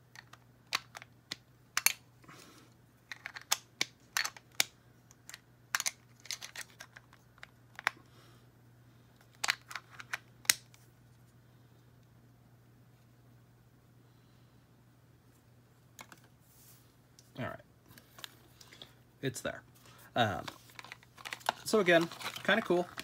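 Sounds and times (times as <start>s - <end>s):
small plastic parts clicking: 0.1s - 2.0s, 3.0s - 8.0s, 9.2s - 10.8s.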